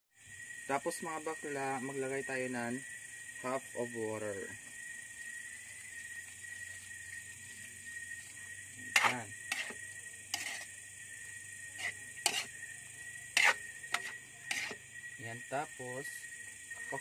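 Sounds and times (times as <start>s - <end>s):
metal spatula scraping a wok: 8.8s - 10.8s, 11.7s - 12.6s, 13.3s - 14.8s.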